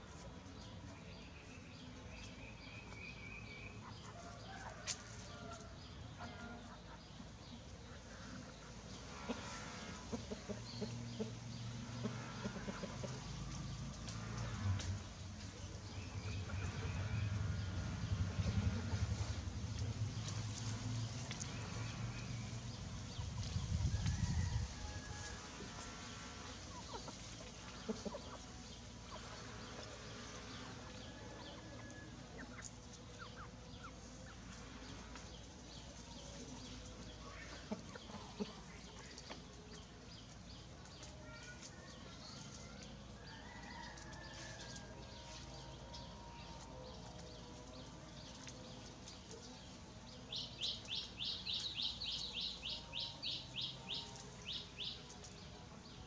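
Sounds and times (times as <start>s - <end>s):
chickens clucking: 3.6s - 22.0s, 25.2s - 56.0s
chicks peeping: 25.6s - 56.0s.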